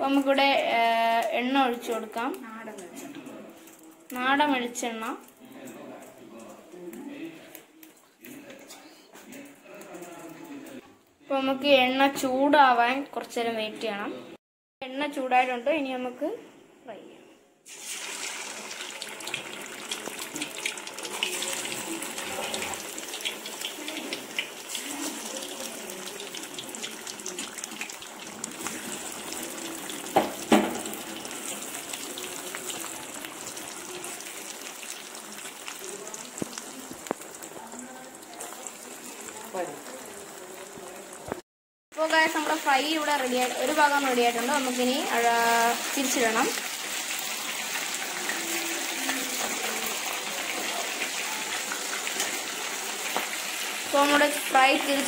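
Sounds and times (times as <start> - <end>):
chicken sizzling in oil: 17.6 - 41.4, 42.0 - 55.0.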